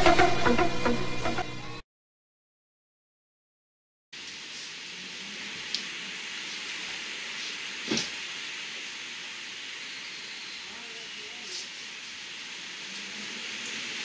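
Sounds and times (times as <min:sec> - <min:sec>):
wind thrashing tree leaves: 0:04.2 - 0:14.0.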